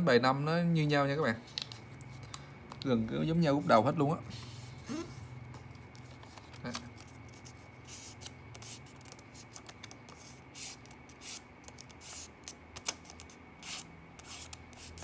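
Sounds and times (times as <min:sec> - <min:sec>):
paper bill rustling: 0:05.6 - 0:15.0
paper crackle: 0:05.9 - 0:15.0.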